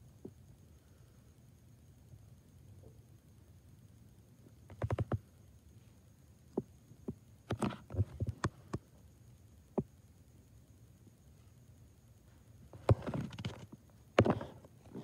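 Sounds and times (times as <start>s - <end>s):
light sharp clicks and taps: 6.5s - 8.9s.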